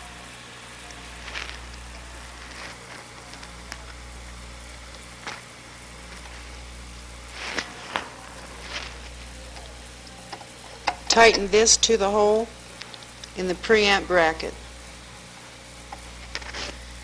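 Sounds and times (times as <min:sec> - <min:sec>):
film soundtrack hum and hiss: 0:00.0 - 0:17.0
clicks and crackles: 0:00.9 - 0:11.4, 0:12.7 - 0:13.4, 0:15.9 - 0:16.8.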